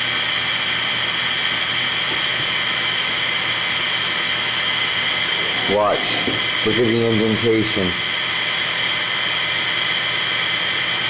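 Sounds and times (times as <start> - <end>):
radio static hissing: 5.1 - 8.1.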